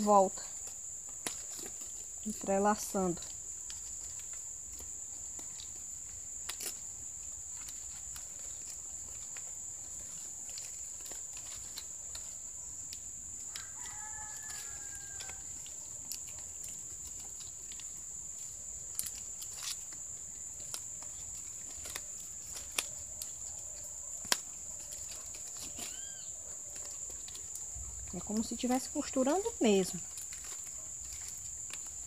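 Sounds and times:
palm fronds rustling and crinkling: 0.0 - 32.0
rooster crowing: 13.5 - 15.6.

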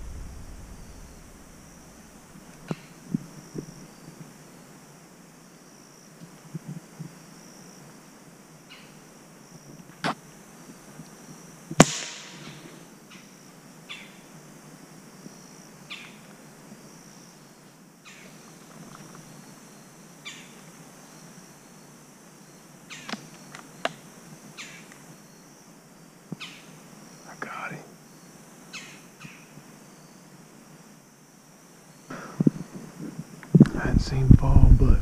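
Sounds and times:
air rifle shot: 0.0 - 2.6, 11.8 - 12.6
insects droning: 0.0 - 35.0.

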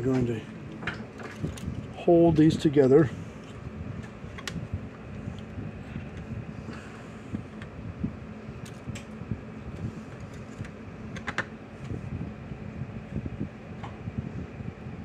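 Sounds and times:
steady low hum: 0.0 - 15.0
wire handling clicks: 3.4 - 4.6, 10.1 - 11.9.

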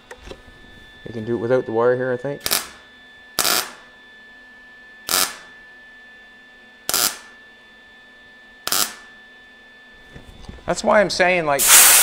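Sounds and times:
welding arc bursts: 2.4 - 2.8, 3.4 - 3.8, 5.1 - 5.4, 6.9 - 7.2, 8.7 - 9.0, 11.6 - 12.0.

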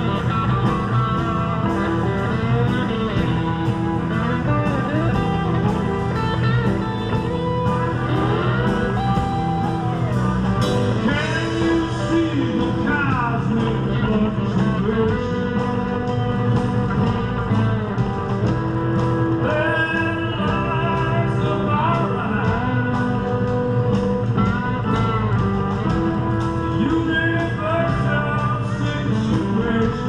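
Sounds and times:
live rock band playing: 0.0 - 30.0
trumpet lines: 15.6 - 29.2.

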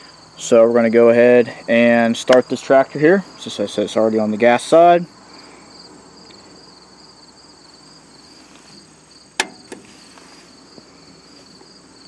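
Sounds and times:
insects chirring: 0.0 - 12.0
sharp click: 9.4 - 9.9.

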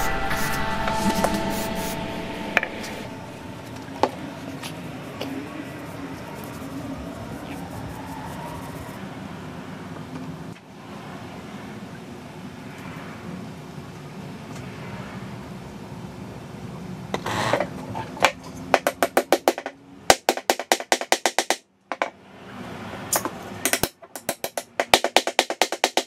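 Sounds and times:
hammer tapping a wedge: 23.2 - 26.0.

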